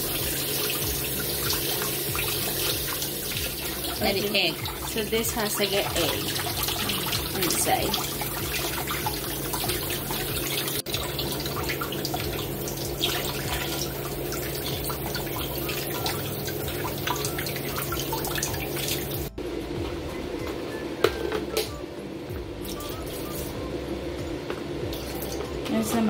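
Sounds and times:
tap water splashing into sink: 0:00.0 - 0:19.3.

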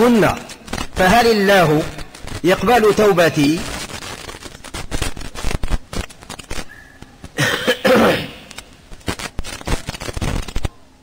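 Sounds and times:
person coughing: 0:07.4 - 0:08.5.

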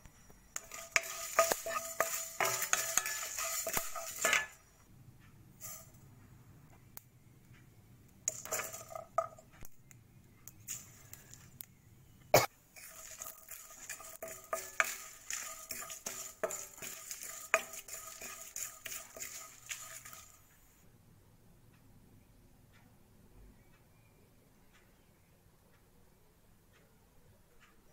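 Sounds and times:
wooden spatula scraping pan: 0:00.6 - 0:04.6, 0:08.3 - 0:09.4, 0:12.8 - 0:20.5.

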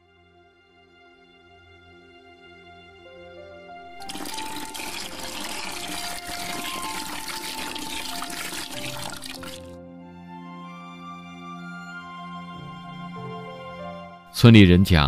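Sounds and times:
soft background music: 0:00.0 - 0:15.0
liquor pouring into glass jar: 0:03.9 - 0:09.8.

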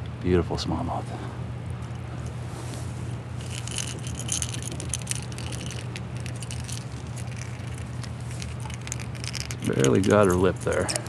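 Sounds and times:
low background noise: 0:00.0 - 0:11.0
lure rattles shaking: 0:03.4 - 0:11.0
metal hooks clicking and rattling: 0:03.4 - 0:11.0.

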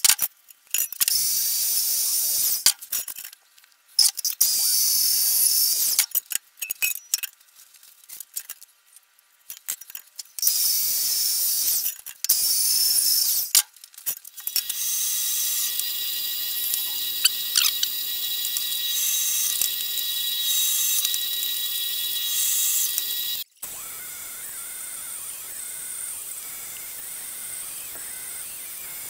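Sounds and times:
welding hiss: 0:14.5 - 0:29.0.

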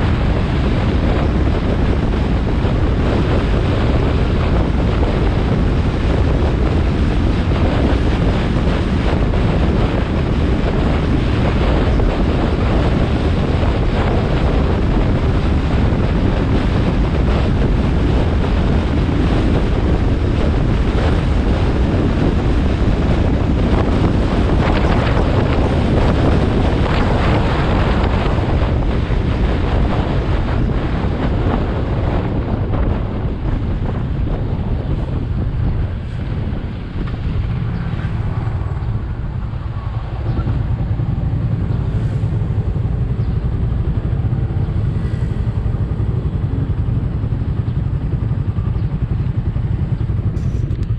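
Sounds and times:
wind buffeting microphone: 0:00.0 - 0:50.9.

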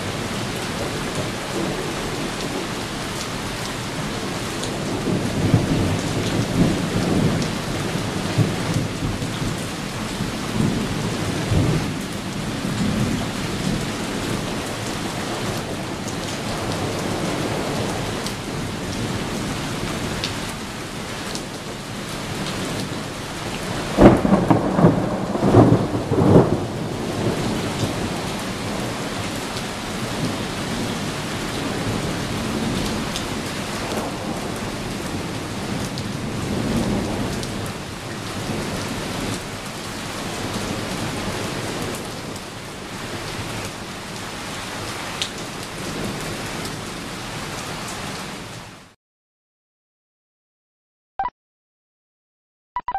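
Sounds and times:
steady rain: 0:00.0 - 0:49.0
thunder rumbling: 0:23.9 - 0:37.7
loud close thunderclap: 0:24.0 - 0:29.0.

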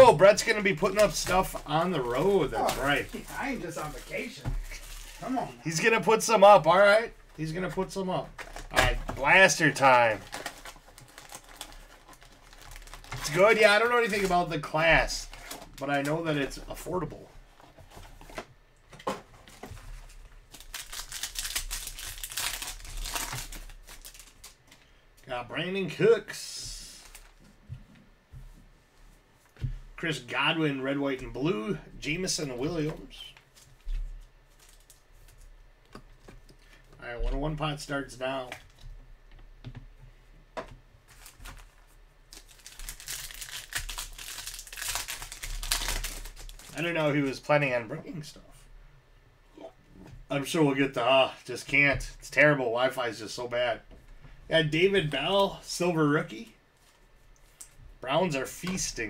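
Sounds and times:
foil wrapper crinkling: 0:08.4 - 0:16.3, 0:20.0 - 0:24.9, 0:34.4 - 0:35.5, 0:41.1 - 0:47.0.

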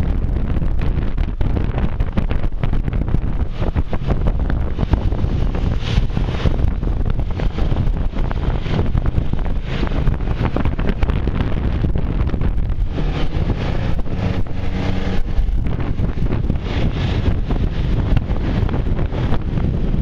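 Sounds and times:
road noise: 0:00.0 - 0:20.0
scooter engine hum: 0:00.0 - 0:20.0
wind buffeting microphone: 0:00.0 - 0:20.0.

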